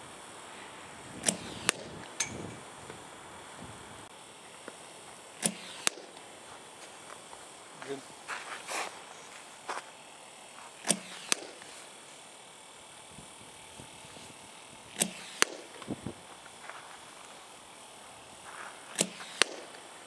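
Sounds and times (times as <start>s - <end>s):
bat hitting balls: 10.9s - 11.7s.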